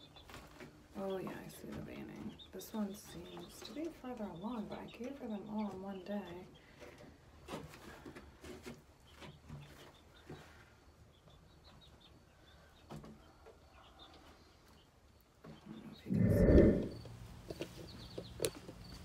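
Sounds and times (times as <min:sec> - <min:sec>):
hen chirping: 0:15.8 - 0:17.1.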